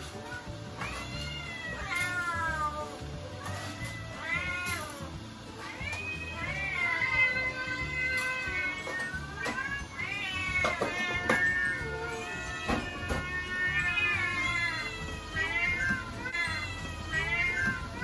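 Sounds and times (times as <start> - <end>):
cats meowing: 0.0 - 18.0.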